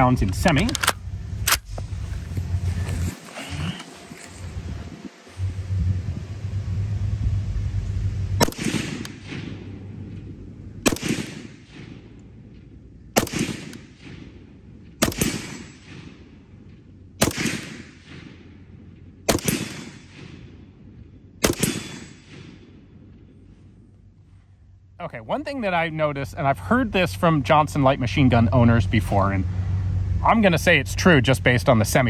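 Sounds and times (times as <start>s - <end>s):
steady low hum: 0.0s - 32.0s
machine gun single shots echoing: 8.4s - 9.8s, 10.8s - 12.0s, 13.2s - 14.3s, 15.0s - 16.2s, 17.2s - 18.5s, 19.3s - 20.5s, 21.4s - 22.8s.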